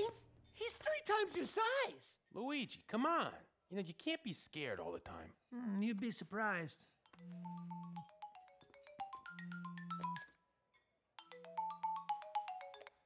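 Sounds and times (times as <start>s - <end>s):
mobile phone ringtone: 7.1s - 10.4s, 11.2s - 13.0s.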